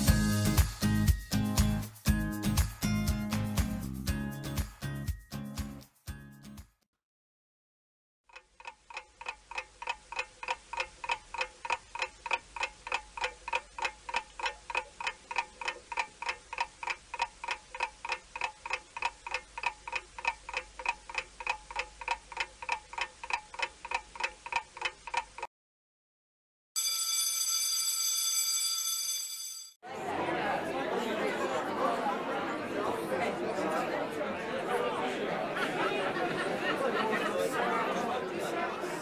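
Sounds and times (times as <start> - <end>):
clock ticking: 8.3 - 25.5.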